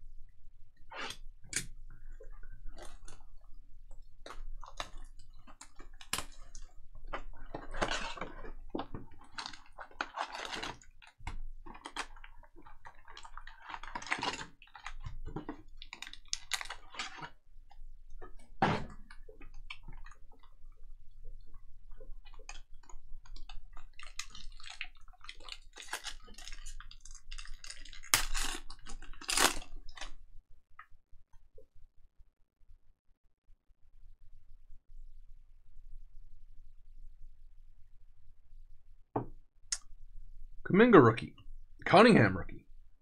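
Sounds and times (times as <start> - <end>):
foil packs crinkling: 7.4 - 17.4, 22.4 - 30.2.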